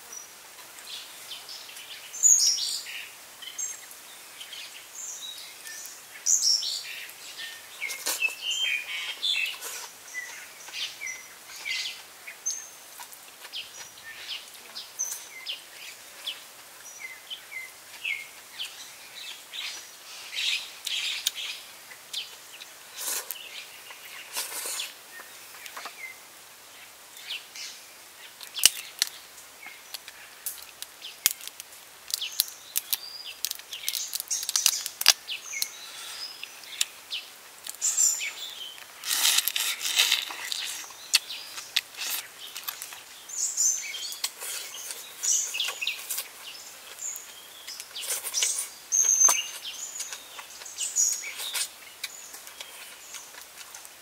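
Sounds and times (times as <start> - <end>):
birds chirping: 0.0 - 54.0
prawn shells cracking: 29.9 - 35.7, 38.8 - 43.0.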